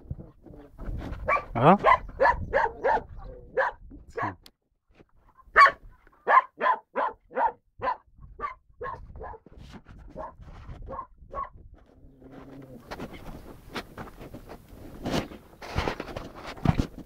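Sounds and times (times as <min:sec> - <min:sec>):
dog barking: 0:01.2 - 0:04.4, 0:05.5 - 0:09.4, 0:10.2 - 0:11.6.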